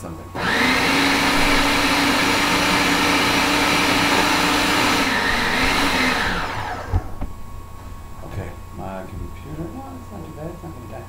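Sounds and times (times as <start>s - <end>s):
food processor motor whining: 0.4s - 7.3s.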